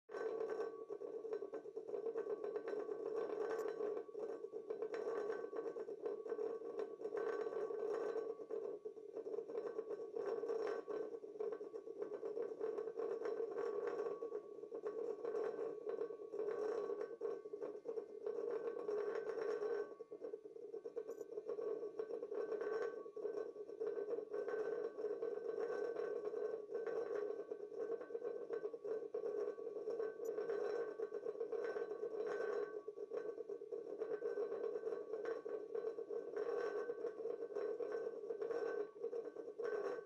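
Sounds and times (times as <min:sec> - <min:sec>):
vibration motors rattling glass bowl: 0:21.0 - 0:24.7, 0:28.0 - 0:33.3.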